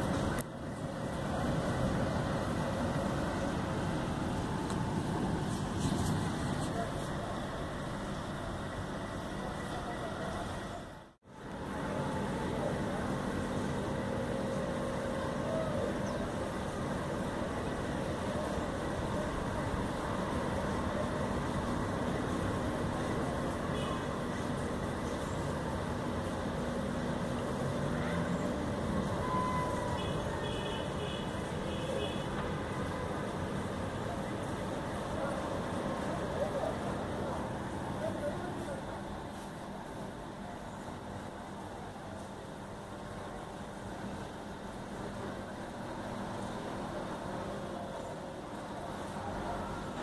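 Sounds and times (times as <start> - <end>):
steady rain hiss: 0.0 - 9.8, 11.3 - 50.0
faint high-pitched tone: 29.2 - 30.8.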